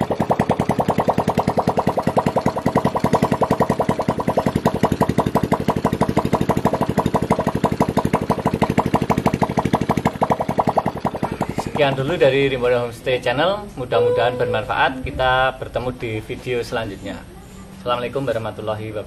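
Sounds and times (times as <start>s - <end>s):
motorcycle engine idling: 0.0s - 12.3s.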